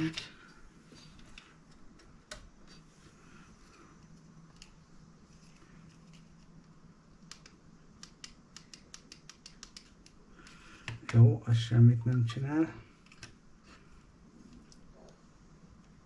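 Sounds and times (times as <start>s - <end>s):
small plastic clicks: 5.9s - 11.1s.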